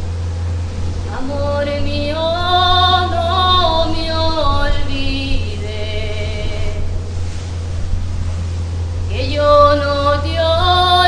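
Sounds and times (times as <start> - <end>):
steady low hum: 0.0 - 11.0
woman singing slow melody: 1.0 - 7.0, 9.1 - 11.0.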